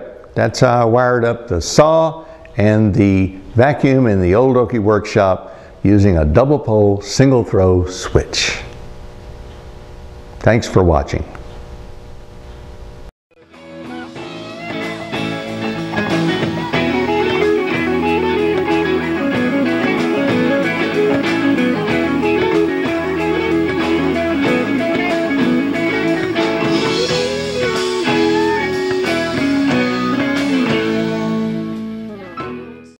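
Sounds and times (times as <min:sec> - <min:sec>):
guitar-led instrumental music: 0:13.4 - 0:33.0.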